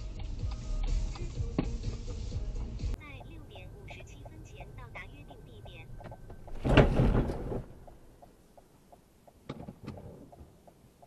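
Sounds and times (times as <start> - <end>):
faint regular ticking: 2.6 - 6.4, 7.8 - 11.0
loud thump with rattle: 6.5 - 7.8.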